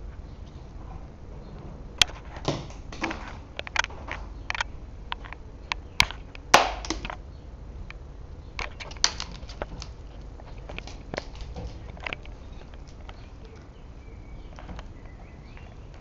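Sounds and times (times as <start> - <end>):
dog playing with bone clicks: 8.6 - 13.7.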